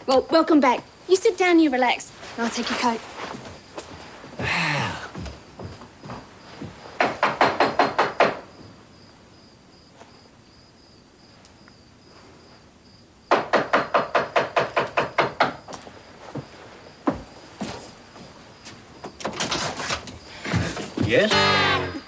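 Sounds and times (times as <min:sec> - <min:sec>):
rapid knocking on a door: 0:06.6 - 0:08.7, 0:13.3 - 0:15.8.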